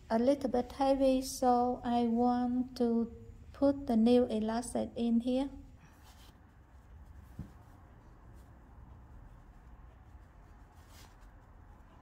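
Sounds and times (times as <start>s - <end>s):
fabric rustling: 5.8s - 12.0s
soft knock: 7.3s - 7.6s.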